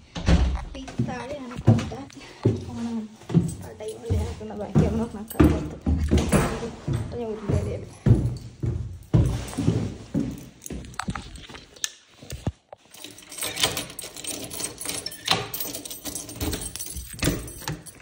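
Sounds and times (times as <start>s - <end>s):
keys jangling in door lock: 12.8s - 18.0s
knocks and rattles: 12.9s - 18.0s.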